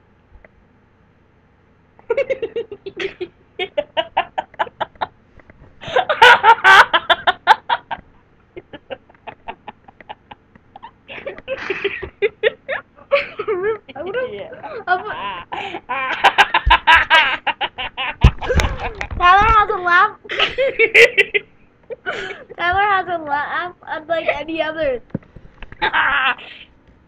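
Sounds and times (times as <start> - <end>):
boy laughing: 2.0 - 5.1, 5.8 - 19.4, 20.2 - 22.6, 25.7 - 26.7.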